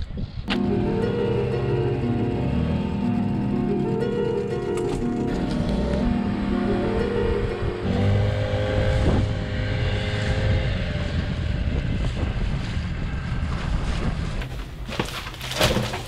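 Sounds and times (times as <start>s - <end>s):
outboard motor droning: 0.6s - 12.5s
wind buffeting microphone: 6.2s - 14.9s.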